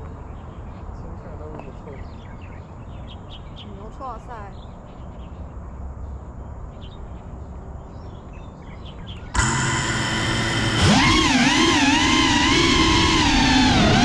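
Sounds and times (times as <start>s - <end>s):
bird chirps: 0.0s - 9.7s
drone motors whining: 9.3s - 14.0s.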